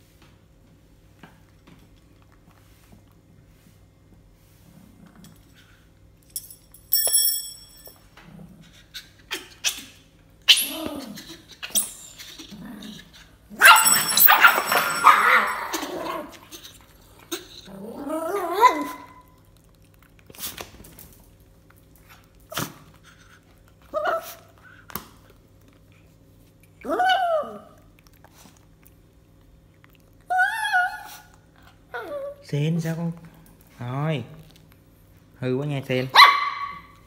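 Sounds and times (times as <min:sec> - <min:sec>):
dog yelping and whining: 0:08.8 - 0:19.4, 0:23.9 - 0:24.5, 0:26.8 - 0:27.9, 0:30.2 - 0:32.4.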